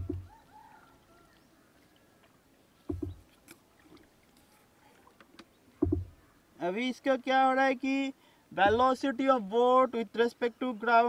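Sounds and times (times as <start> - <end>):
pole knocking on wooden boat: 0.0 - 0.3, 2.9 - 3.2, 5.8 - 6.2
quiet river ambience: 0.0 - 11.0.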